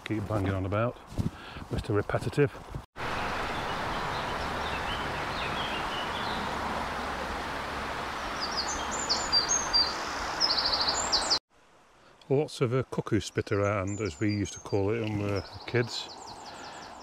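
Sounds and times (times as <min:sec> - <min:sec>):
small birds chirping: 0:03.0 - 0:06.6, 0:08.2 - 0:11.4, 0:13.1 - 0:17.0
stream rushing: 0:03.0 - 0:11.4.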